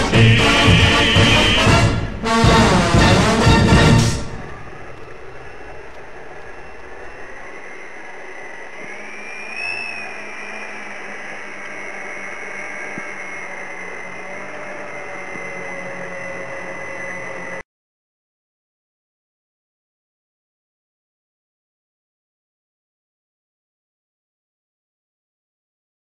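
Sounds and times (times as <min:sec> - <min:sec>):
model aircraft motors whining: 0:04.2 - 0:17.6.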